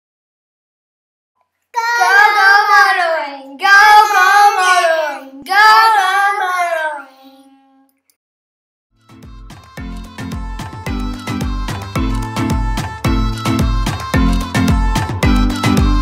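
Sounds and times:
high voice singing jingle: 1.8 - 7.9.

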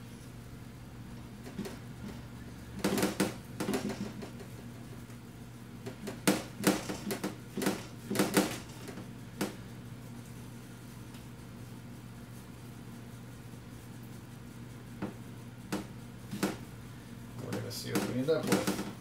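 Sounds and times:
knocks on metal baking sheet: 2.8 - 4.3, 5.9 - 9.6, 15.0 - 16.6, 17.5 - 19.0.

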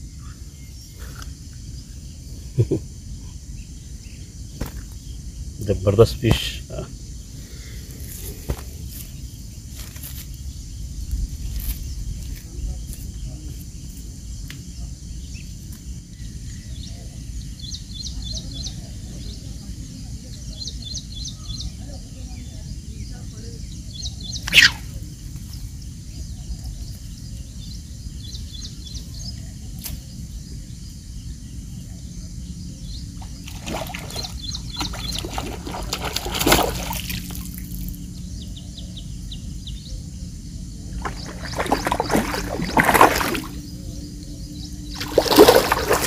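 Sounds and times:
fish splashing at water surface: 33.4 - 37.8, 41.0 - 43.6, 44.9 - 46.0.

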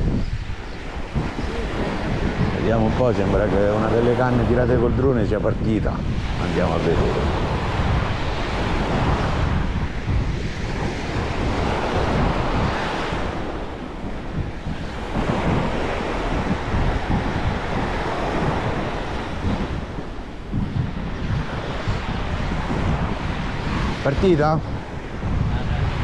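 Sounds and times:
wind buffeting microphone: 0.0 - 26.0
small waves breaking on shore: 5.8 - 26.0.

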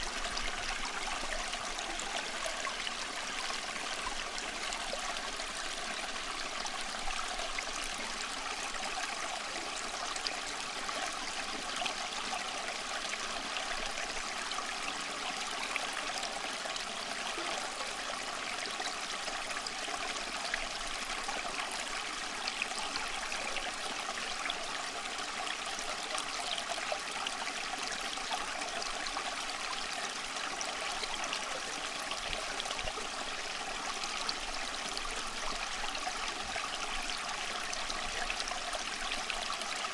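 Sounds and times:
running water: 0.0 - 25.0.

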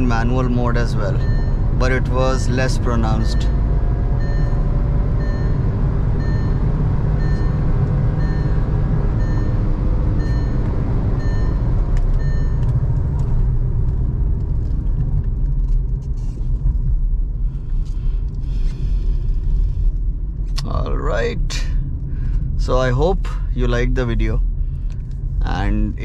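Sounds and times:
dashboard warning chime beeping: 0.0 - 12.9
car cabin road and wind rumble: 0.0 - 26.0.

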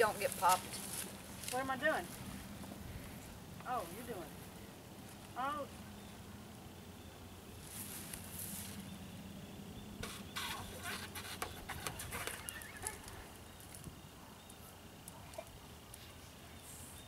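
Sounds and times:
rubber balloon squeaking and crackling: 10.0 - 13.3.

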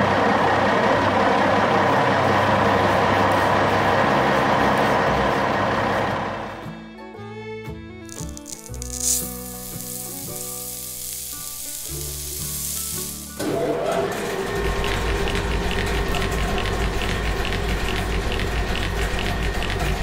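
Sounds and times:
light music: 6.5 - 16.6
grain pouring into a crusher: 8.1 - 20.0
machine with deep rumble: 13.1 - 20.0.

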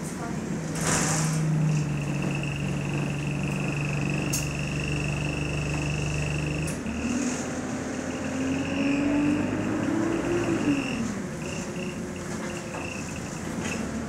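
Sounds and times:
bus engine hum: 0.0 - 14.0
high steady whine: 1.6 - 7.1
tone rising in pitch: 1.6 - 7.1.

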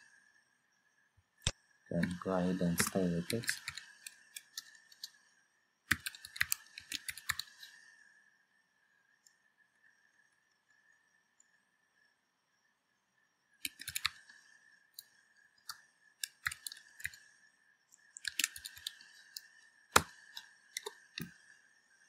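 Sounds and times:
faint high whine: 0.0 - 22.0
computer keyboard typing: 1.9 - 5.1, 5.9 - 7.7, 13.6 - 14.3, 15.6 - 17.2, 18.2 - 21.3.

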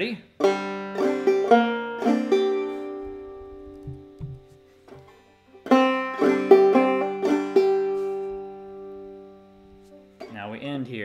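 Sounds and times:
banjo playing: 0.4 - 10.9
faint low knocks: 3.1 - 5.1.

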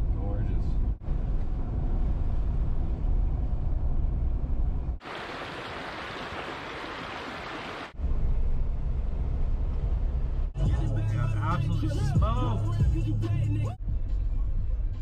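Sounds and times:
creek running over rocks: 5.0 - 8.0.

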